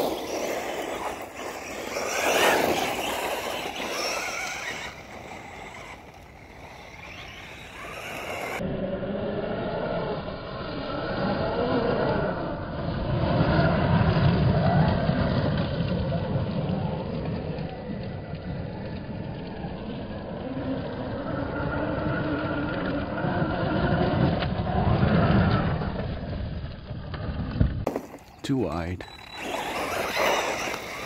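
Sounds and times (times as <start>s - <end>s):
toy truck motor whine: 0.0s - 8.6s, 29.0s - 31.0s
tyres crunching on gravel: 27.9s - 31.0s.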